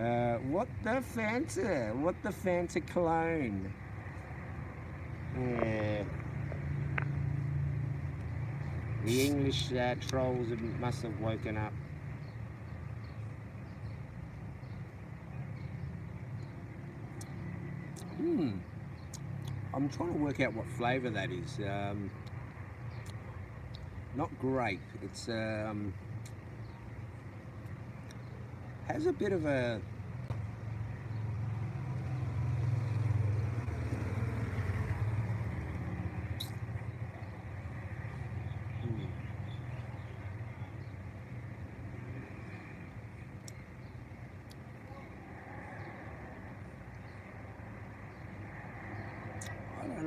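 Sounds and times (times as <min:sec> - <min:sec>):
distant traffic hum: 0:00.0 - 0:50.0
small motorcycle engine passing: 0:31.2 - 0:36.3.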